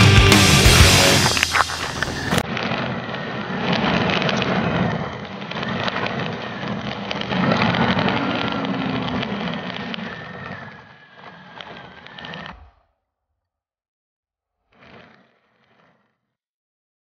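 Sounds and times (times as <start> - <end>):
vehicle engine running: 0.0 - 2.4
tyres crunching over gravel: 0.3 - 2.4.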